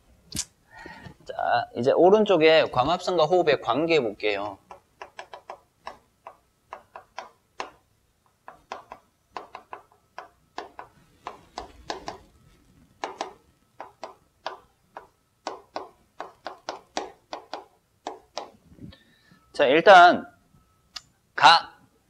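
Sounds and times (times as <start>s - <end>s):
chalk tapping and scratching: 8.4s - 12.3s.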